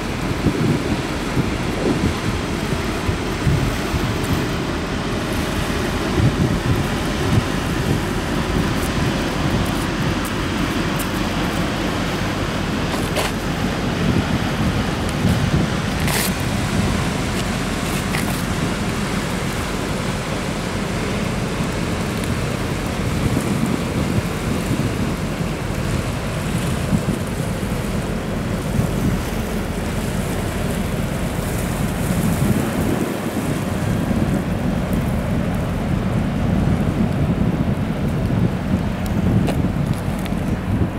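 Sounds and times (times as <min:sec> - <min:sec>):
ship engine rumble: 0:00.0 - 0:40.9
wind on microphone: 0:00.0 - 0:40.9.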